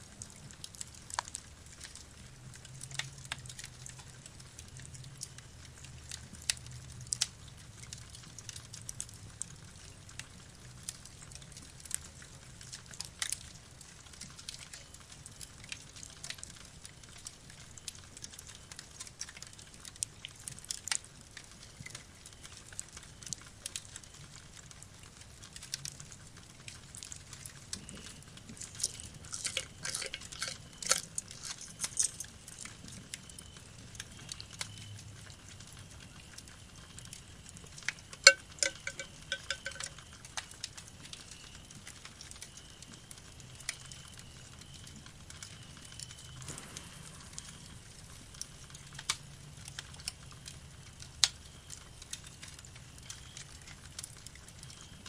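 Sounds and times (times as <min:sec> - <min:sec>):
small metal clicks and taps: 0:27.0 - 0:33.2, 0:37.7 - 0:40.8
ringing metallic clink: 0:38.3 - 0:39.9.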